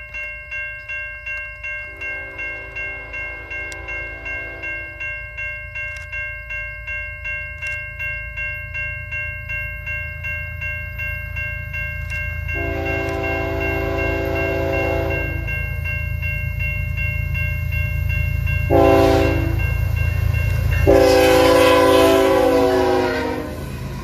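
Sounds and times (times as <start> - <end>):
crossing bell ringing: 0.0 - 24.0
train horn blasts: 2.2 - 4.9, 12.6 - 15.5, 18.7 - 19.7, 20.8 - 23.8
locomotive rumble: 12.0 - 24.0.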